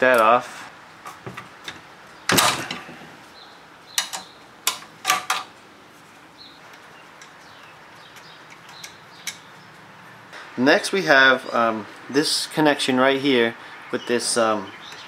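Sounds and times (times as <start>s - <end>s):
tools clicking on metal: 6.7s - 9.5s.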